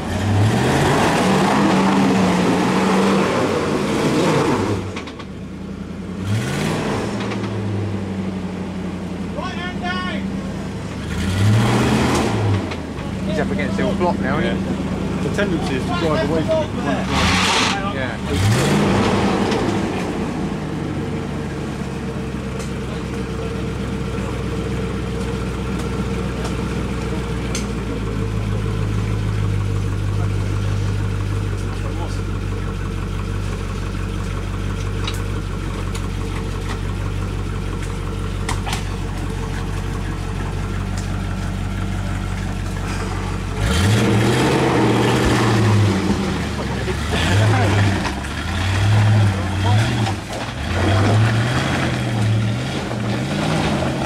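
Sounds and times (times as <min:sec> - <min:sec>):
engine revving under load: 0:00.0 - 0:05.2, 0:06.1 - 0:08.2, 0:10.8 - 0:21.4, 0:38.4 - 0:54.0
wheels churning mud: 0:15.3 - 0:20.0, 0:37.7 - 0:54.0.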